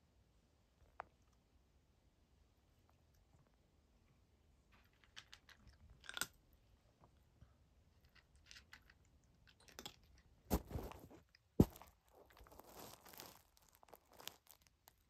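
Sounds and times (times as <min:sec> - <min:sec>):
cat crunching dry kibble: 0:04.7 - 0:06.6, 0:07.9 - 0:15.0
rustling: 0:10.5 - 0:15.0.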